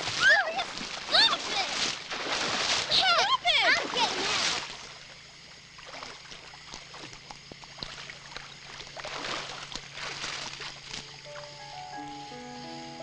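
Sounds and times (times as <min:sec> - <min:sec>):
water splashing in a creek: 0:00.0 - 0:12.2
water dripping: 0:05.8 - 0:11.6.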